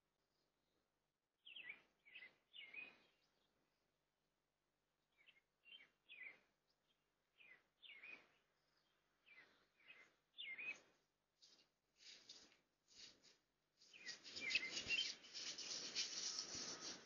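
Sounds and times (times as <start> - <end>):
bird chirping: 1.4 - 3.6, 5.1 - 13.1, 13.8 - 17.0.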